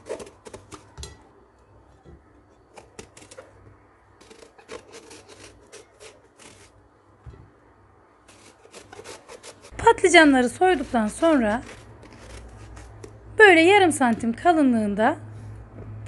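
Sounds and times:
blade scraping eggplant skin: 0:00.0 - 0:00.9, 0:02.7 - 0:03.6, 0:04.2 - 0:06.8, 0:08.2 - 0:13.3.

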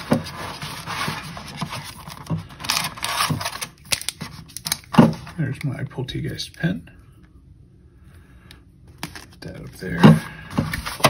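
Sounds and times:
foil wrappers crinkling: 0:00.0 - 0:05.5.

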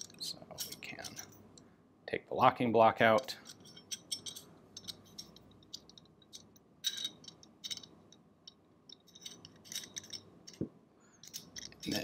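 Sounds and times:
metal pistol parts clicking: 0:03.2 - 0:12.0.

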